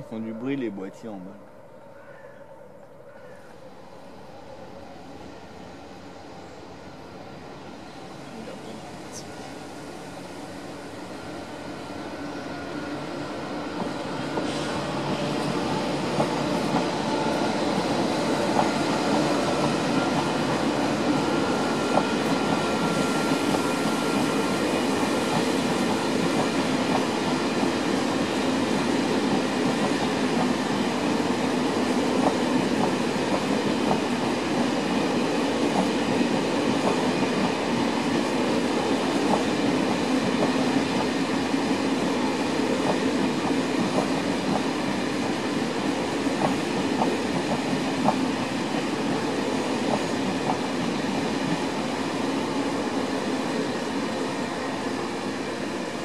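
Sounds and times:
train wheels rumbling on rail: 0:07.5 - 0:56.0
train wheel clacks: 0:13.8 - 0:28.0, 0:28.7 - 0:31.3, 0:32.1 - 0:35.0, 0:35.7 - 0:37.6, 0:39.2 - 0:45.0, 0:46.2 - 0:51.8.

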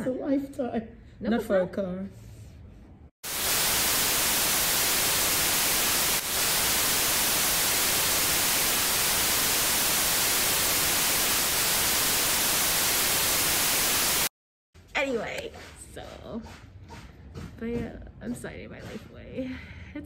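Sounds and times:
white noise hiss: 0:03.2 - 0:14.3.

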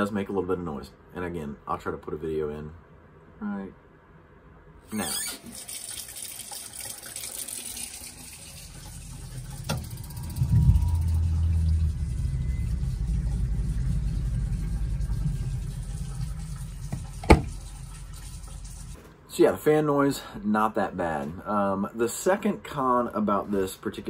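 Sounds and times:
water heater fan humming: 0:04.9 - 0:19.0
tap water running into sink: 0:05.0 - 0:19.0.

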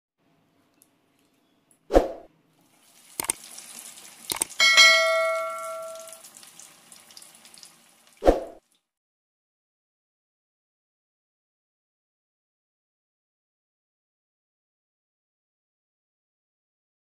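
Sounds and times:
frying oil hiss: 0:02.6 - 0:08.7
sharp mouse clicks: 0:04.3 - 0:04.5
notification bell ding: 0:04.6 - 0:06.2.

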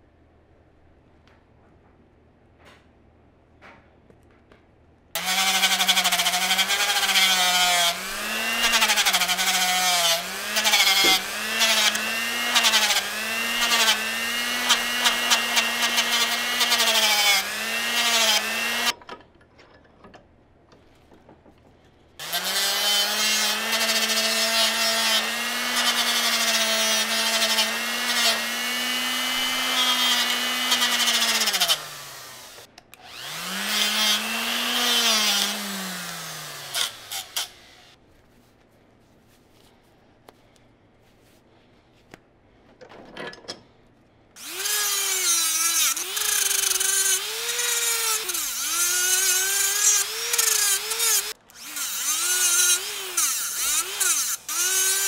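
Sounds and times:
rotary tool grinding steel: 0:05.2 - 0:19.0, 0:22.2 - 0:38.0, 0:44.4 - 0:55.0.

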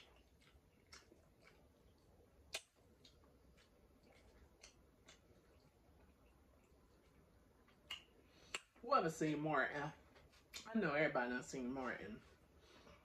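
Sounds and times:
chewing clicks: 0:00.0 - 0:08.8.

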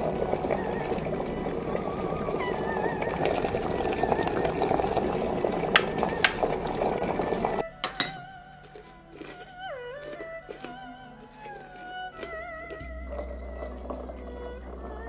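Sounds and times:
electric kettle boiling: 0:00.0 - 0:08.1, 0:12.7 - 0:15.0
kettle clicks: 0:00.0 - 0:08.3, 0:12.2 - 0:15.0
teapot lid clinking: 0:00.2 - 0:08.3, 0:12.8 - 0:15.0.

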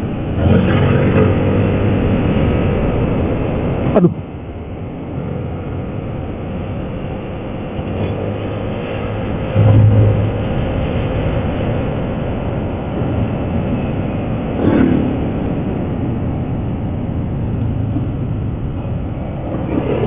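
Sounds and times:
motorcycle engine hum: 0:00.0 - 0:20.0
wind noise: 0:00.0 - 0:20.0
short falling whine: 0:09.5 - 0:12.7.

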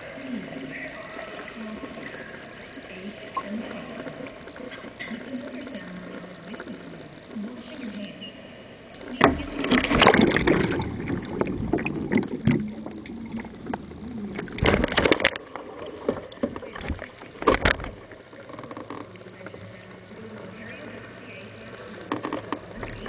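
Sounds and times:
water splashing and gurgling: 0:09.0 - 0:19.4, 0:20.0 - 0:23.0
churning water: 0:09.0 - 0:23.0.

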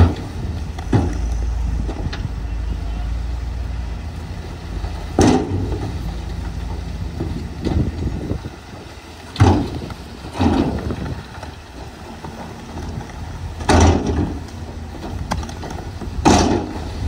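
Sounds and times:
rock crashing from dump truck: 0:00.0 - 0:02.3, 0:04.8 - 0:08.4, 0:09.2 - 0:17.0
diesel truck engines running: 0:00.0 - 0:17.0.

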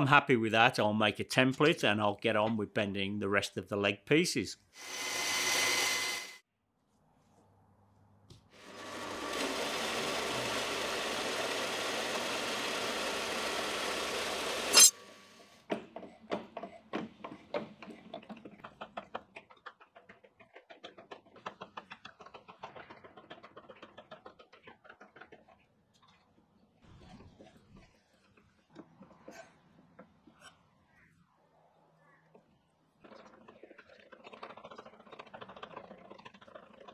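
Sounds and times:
power tool running: 0:04.8 - 0:06.4, 0:08.6 - 0:15.6
steel bar ringing scrape: 0:14.7 - 0:15.0.

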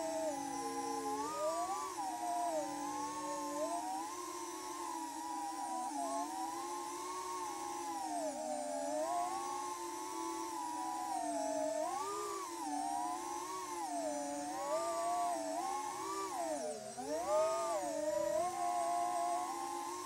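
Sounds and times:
drone motors whining: 0:00.0 - 0:20.0.

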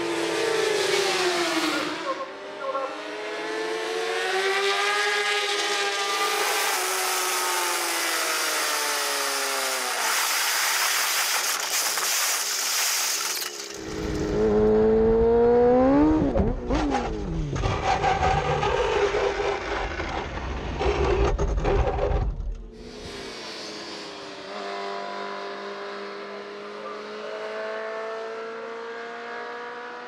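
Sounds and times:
racing motorcycles passing: 0:00.0 - 0:10.0, 0:13.8 - 0:17.5, 0:23.3 - 0:30.0
motorcycle engine revving: 0:00.0 - 0:10.2, 0:13.8 - 0:20.4, 0:22.8 - 0:30.0.

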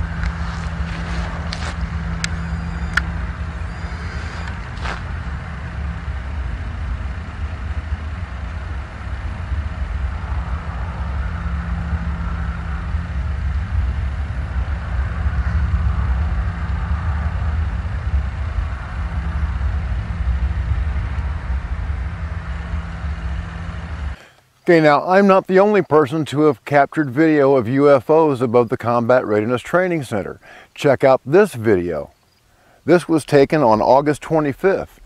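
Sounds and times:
low roar from the sky: 0:00.0 - 0:24.2
droning engine hum: 0:00.0 - 0:24.6.

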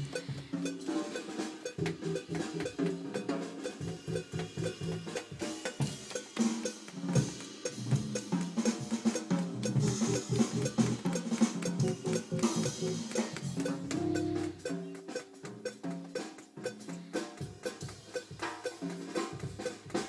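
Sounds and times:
drum kit playing: 0:00.0 - 0:20.0
electric bass playing: 0:13.8 - 0:14.6.

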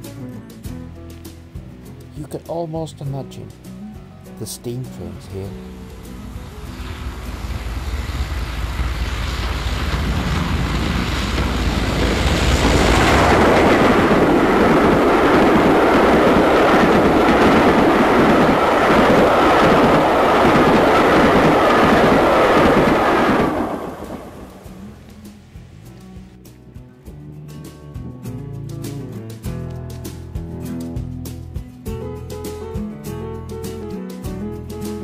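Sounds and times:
steam train passing: 0:05.0 - 0:25.8.

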